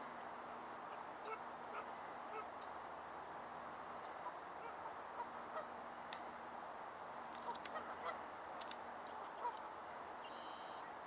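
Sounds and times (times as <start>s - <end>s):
steady background noise: 0.0s - 11.0s
distant waterfowl calling: 0.8s - 2.7s, 4.0s - 5.8s, 7.4s - 8.3s, 9.2s - 10.9s.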